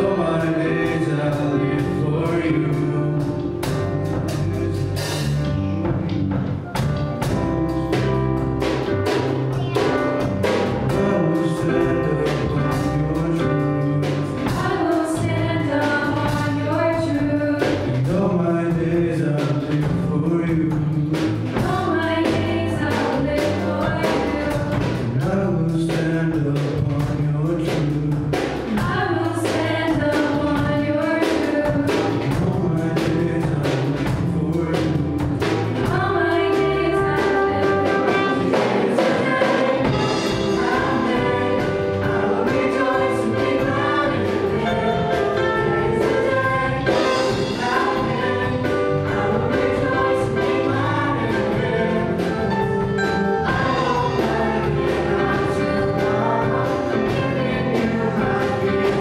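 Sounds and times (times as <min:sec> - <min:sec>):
drum kit beat: 0:00.0 - 0:59.0
piano: 0:00.0 - 0:59.0
electric bass guitar: 0:01.8 - 0:15.6
group singing into microphones: 0:10.8 - 0:59.0.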